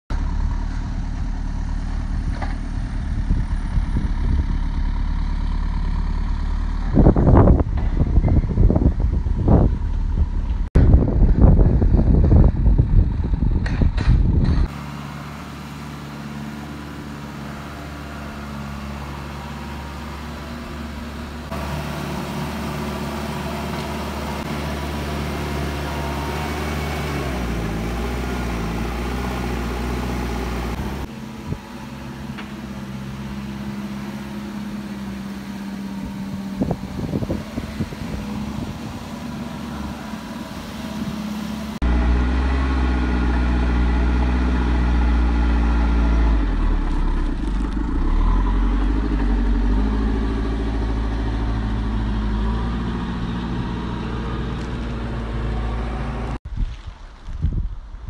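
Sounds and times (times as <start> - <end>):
diesel engine running: 0.1 - 56.4
wind buffeting microphone: 2.1 - 4.9, 6.8 - 14.7, 36.0 - 41.4, 56.4 - 58.0.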